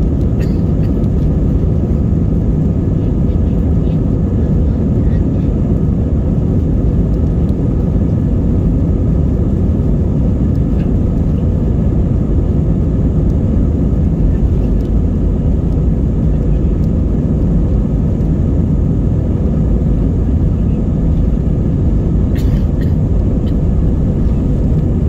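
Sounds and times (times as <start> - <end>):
aircraft cabin rumble: 0.0 - 25.0.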